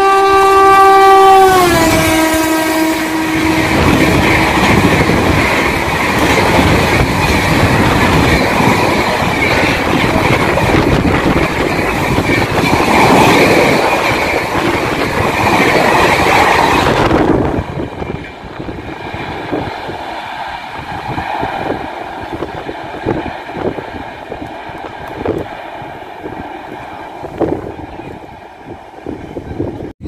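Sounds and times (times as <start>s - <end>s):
distant train rumble: 0.0s - 30.0s
train wheels rushing on rail: 0.0s - 30.0s.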